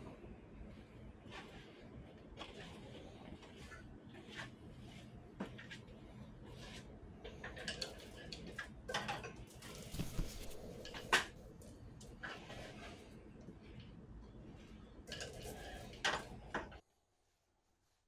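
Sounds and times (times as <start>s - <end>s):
handling knocks and rustles: 8.9s - 11.6s.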